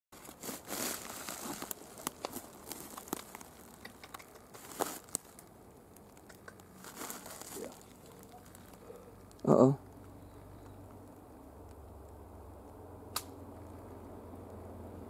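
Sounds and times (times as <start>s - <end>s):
rustling and crinkling: 0.2s - 11.8s.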